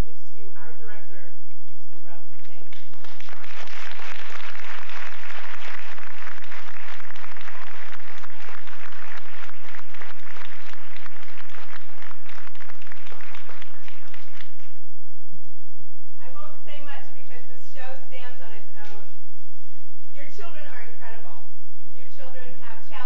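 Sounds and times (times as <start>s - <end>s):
audience applause: 2.9s - 14.8s.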